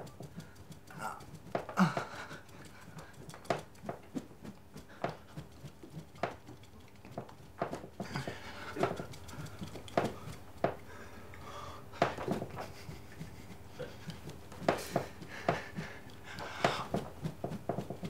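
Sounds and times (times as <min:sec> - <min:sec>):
man grunting breathily: 0:00.9 - 0:01.2, 0:01.8 - 0:02.4
knocks and thumps: 0:05.0 - 0:10.9, 0:12.0 - 0:18.0.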